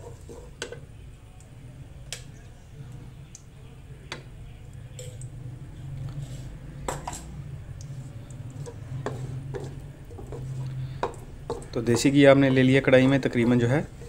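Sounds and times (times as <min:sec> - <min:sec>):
wooden spoon scraping a pan: 0:00.0 - 0:00.9, 0:06.0 - 0:14.0.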